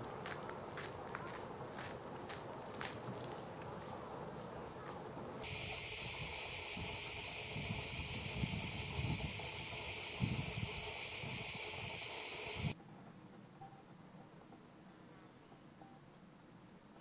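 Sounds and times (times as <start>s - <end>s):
high-pitched insect drone: 5.4s - 12.8s.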